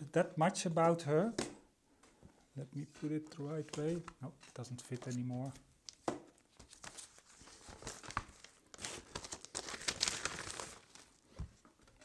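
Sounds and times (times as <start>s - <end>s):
paper sleeve rustling and crinkling: 6.5s - 11.6s.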